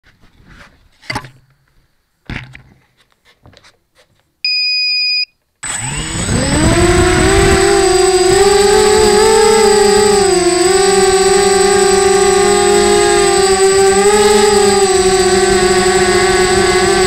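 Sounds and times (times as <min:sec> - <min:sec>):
knocks and rustles of handling: 0:00.0 - 0:04.4
quadcopter motors whining: 0:05.6 - 0:17.0.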